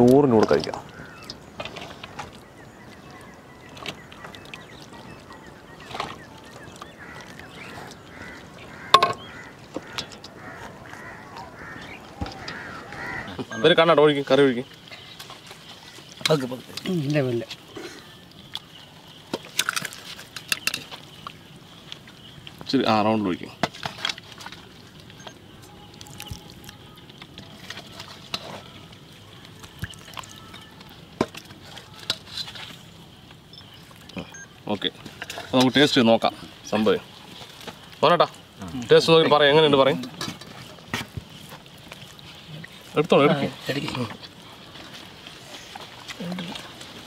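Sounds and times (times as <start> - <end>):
short bird calls: 0.8 - 13.6
metal ladle clanking on pot: 8.9 - 9.3.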